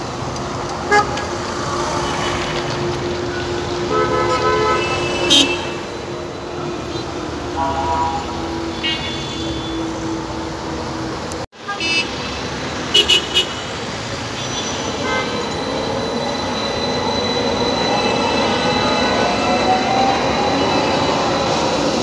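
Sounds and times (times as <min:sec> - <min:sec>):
street traffic noise: 0:00.0 - 0:22.0
tram motor whine: 0:14.7 - 0:22.0.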